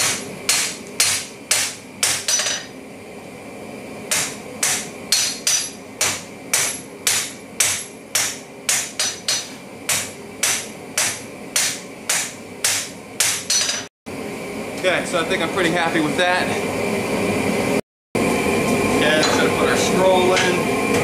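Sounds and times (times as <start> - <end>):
hammer striking steel on anvil: 0.0 - 2.7, 4.1 - 13.9
metallic ring of anvil: 13.5 - 13.9.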